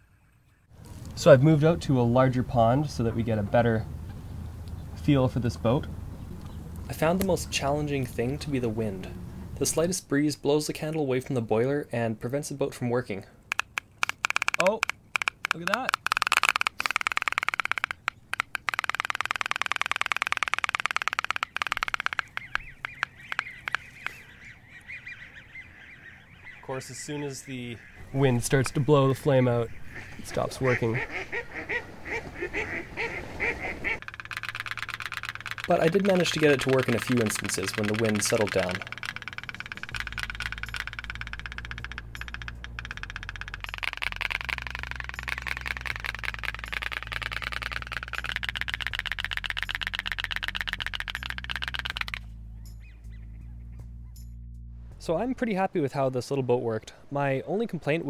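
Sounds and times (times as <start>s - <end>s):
toy steam boat putting: 13.5s - 24.2s, 34.0s - 52.2s.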